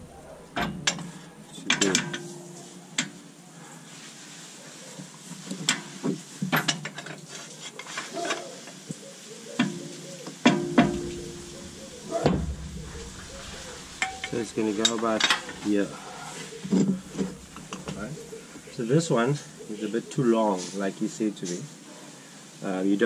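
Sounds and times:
metal clinking and scraping: 0.6 - 3.1, 9.6 - 18.4
sharp knocks: 10.5 - 15.5.

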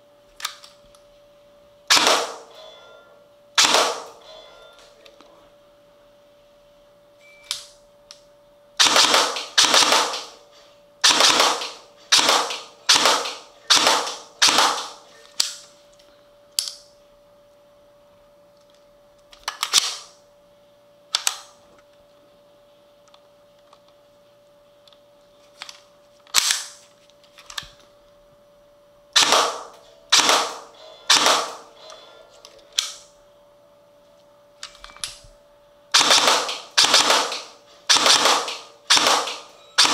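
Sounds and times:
airsoft gun firing single shots: 8.8 - 10.4, 11.0 - 15.0, 29.2 - 31.6, 36.0 - 39.9.

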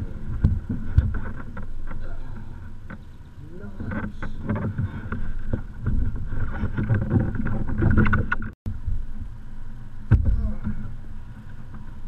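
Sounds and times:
water sloshing against hull: 0.0 - 9.4.

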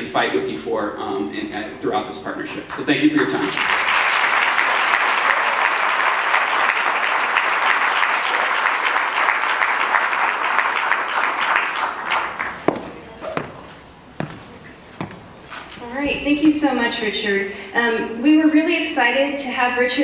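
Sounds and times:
audience applauding: 3.3 - 13.6
knocks: 12.6 - 15.2.

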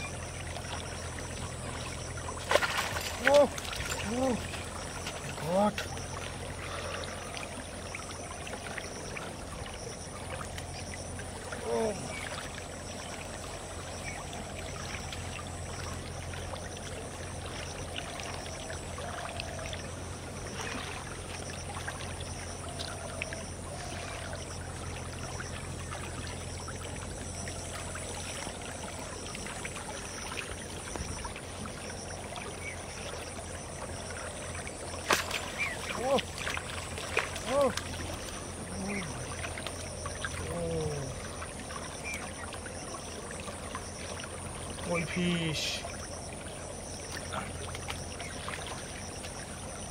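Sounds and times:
water flowing and trickling: 0.0 - 49.9.

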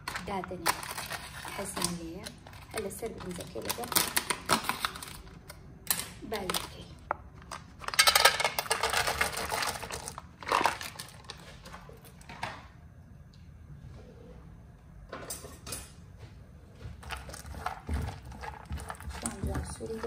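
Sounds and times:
nuts clattering into pan: 7.8 - 11.1.

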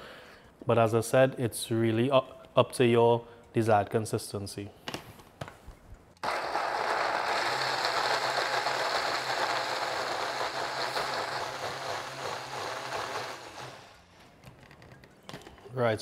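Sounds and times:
blender whirring: 6.2 - 14.2.

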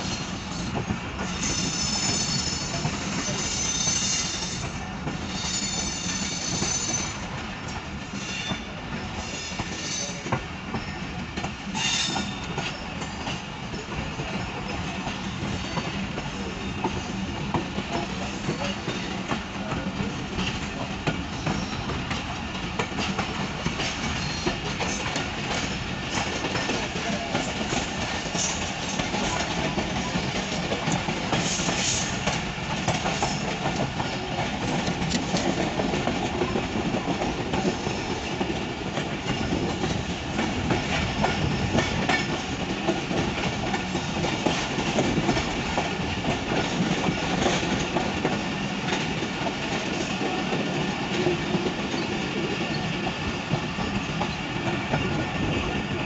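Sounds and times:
train rumble and rush: 0.0 - 56.0
train wheels clattering on track: 0.0 - 56.0.

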